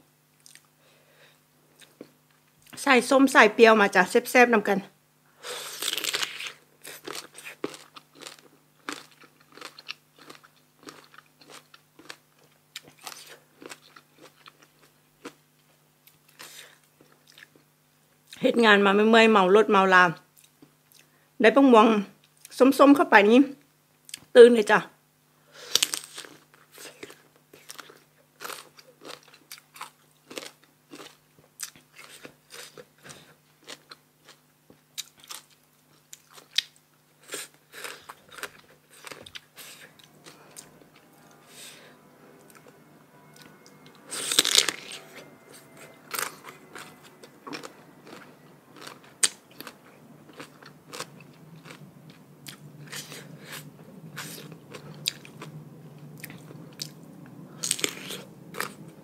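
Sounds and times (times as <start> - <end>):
crunchy bites and chewing: 5.7 - 15.4, 25.6 - 34.4, 46.1 - 55.5.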